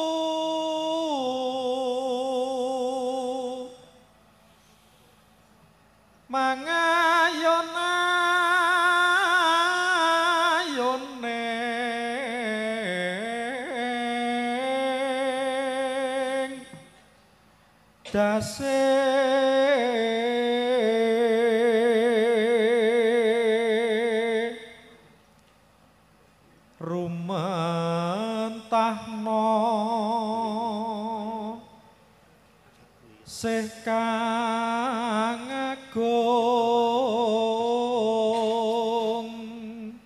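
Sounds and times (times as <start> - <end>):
man chanting into a microphone: 0.0 - 3.9, 6.3 - 17.0, 18.0 - 25.0, 26.8 - 31.8, 33.0 - 40.0.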